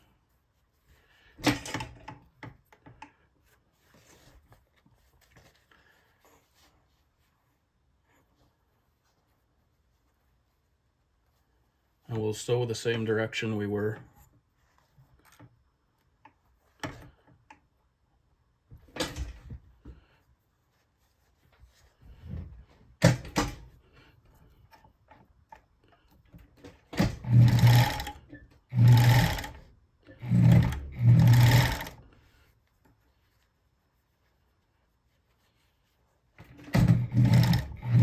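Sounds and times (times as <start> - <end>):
sewing machine running: 27.0 - 32.0, 36.7 - 38.0.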